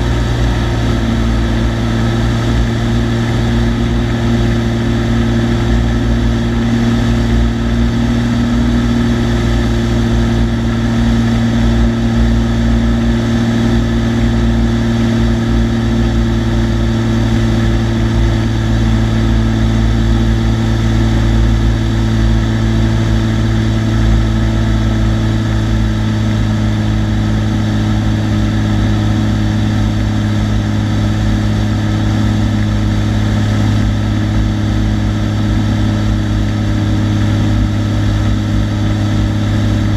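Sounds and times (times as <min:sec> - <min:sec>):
propeller plane engine drone: 0:00.0 - 0:39.9.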